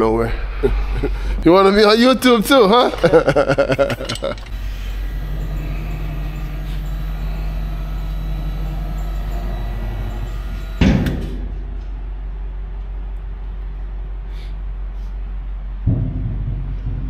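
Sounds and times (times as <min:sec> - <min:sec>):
pump motor humming: 0:04.3 - 0:11.7.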